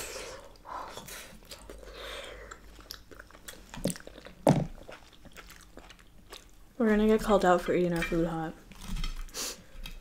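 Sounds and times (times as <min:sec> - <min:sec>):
close chewing mouth sounds: 0:00.4 - 0:07.6.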